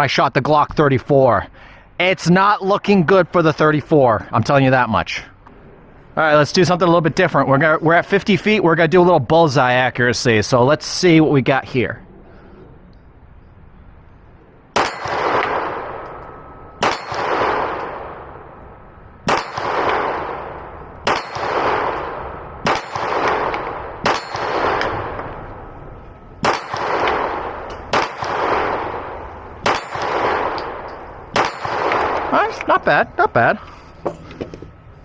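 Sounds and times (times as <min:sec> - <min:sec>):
pistol shots echoing: 0:14.8 - 0:25.8, 0:26.4 - 0:32.6.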